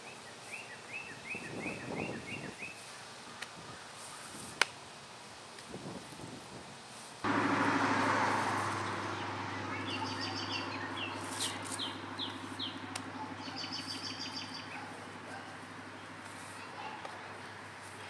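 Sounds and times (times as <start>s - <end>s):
rushing noise: 7.3s - 16.3s
low machine hum: 7.3s - 16.4s
small birds chirping: 8.2s - 18.0s.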